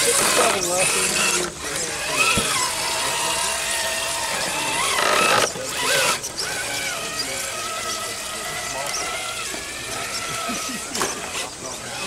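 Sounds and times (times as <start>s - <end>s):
toy truck electric motor whining: 0.0s - 12.0s.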